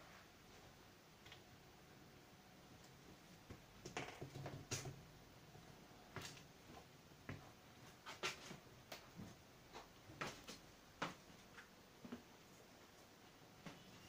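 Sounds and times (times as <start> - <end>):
faint clicks and taps: 1.2 - 1.5.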